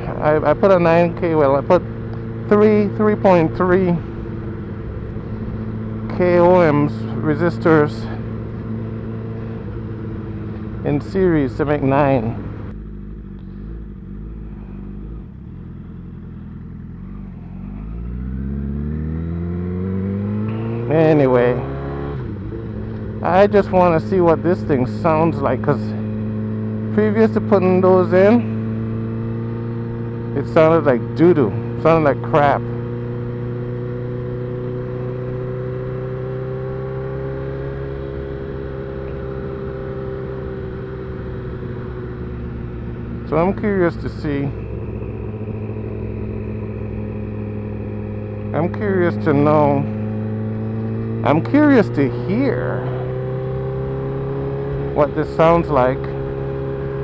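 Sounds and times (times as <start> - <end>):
motorcycle engine revving: 0.0 - 57.0
wind and road noise: 0.0 - 57.0.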